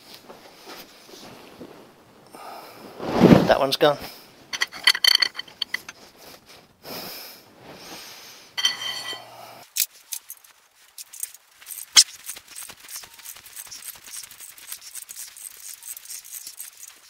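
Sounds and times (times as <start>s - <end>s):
hand tools clinking on metal: 4.6s - 6.0s, 8.6s - 9.4s.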